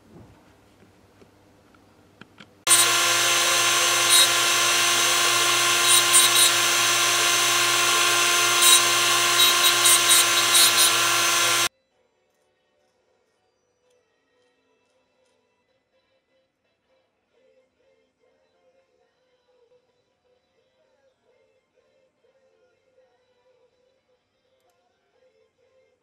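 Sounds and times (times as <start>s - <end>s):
cutting disc grinding metal: 2.7s - 11.7s
rotary tool whining: 2.7s - 11.7s.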